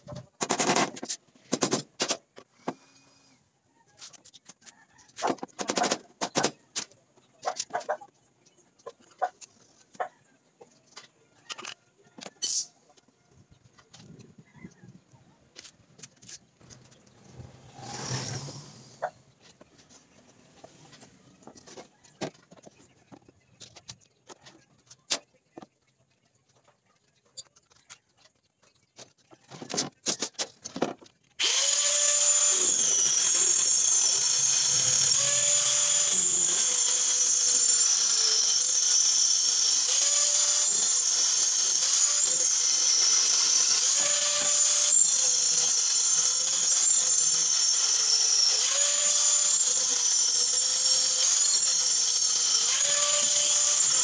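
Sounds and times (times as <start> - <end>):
angle grinder cutting plywood: 16.8 - 19.2, 31.4 - 54.0.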